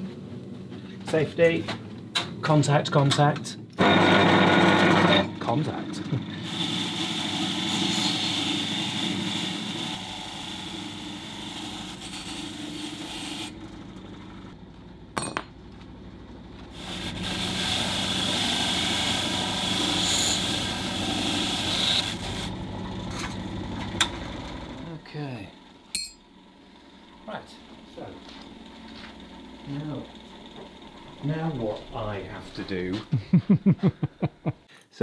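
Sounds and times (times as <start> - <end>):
power wire brush scouring steel: 6.4 - 13.6, 16.7 - 23.4
metallic clink: 15.2 - 15.5, 25.9 - 26.3.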